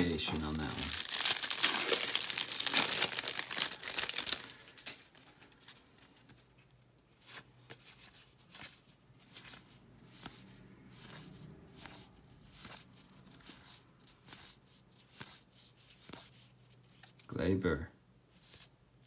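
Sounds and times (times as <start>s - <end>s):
plastic wrapper crinkling: 0.0s - 5.6s.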